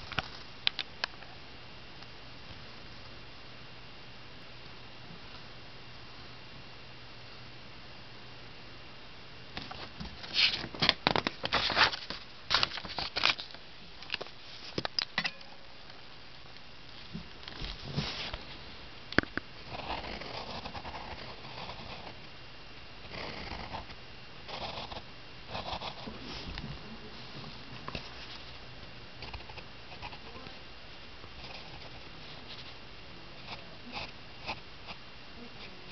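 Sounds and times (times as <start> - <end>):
pencil scratching on paper: 19.7 - 22.2, 23.0 - 26.2, 29.2 - 30.3, 33.4 - 35.0.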